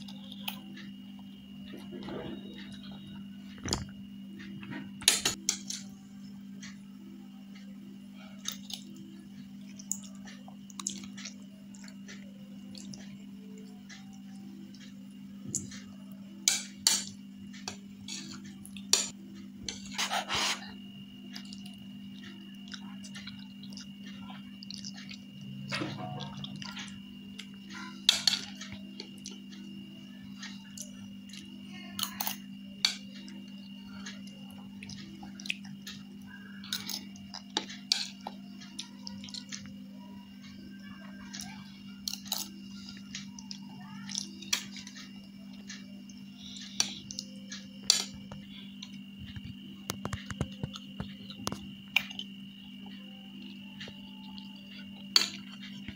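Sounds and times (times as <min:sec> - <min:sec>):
steady low hum: 0:00.0 - 0:55.9
spoon scraping a plate: 0:19.7 - 0:20.8.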